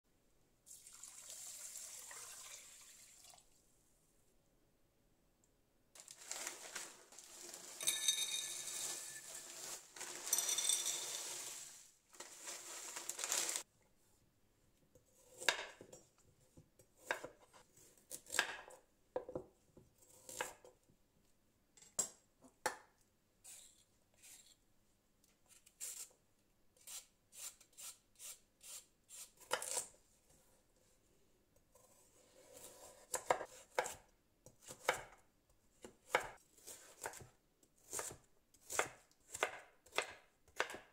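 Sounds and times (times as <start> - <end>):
frozen vegetables rattling into glass: 6.0 - 13.6
knife chopping on cutting board: 17.0 - 17.4, 32.7 - 34.0, 35.8 - 40.8.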